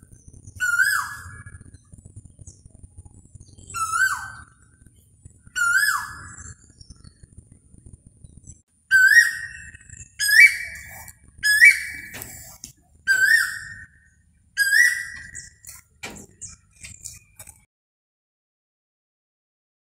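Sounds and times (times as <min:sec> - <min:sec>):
koel calling: 0:08.9 - 0:13.9, 0:14.6 - 0:16.3.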